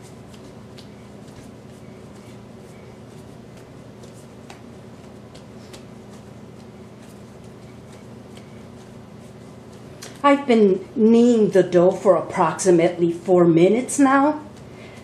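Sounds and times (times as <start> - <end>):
steady low hum: 0.0 - 15.0
dough patted on stone: 3.4 - 8.8.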